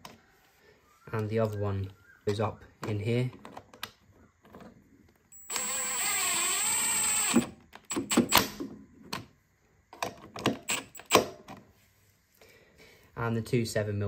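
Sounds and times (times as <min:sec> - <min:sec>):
cordless driver running: 0:05.4 - 0:08.2.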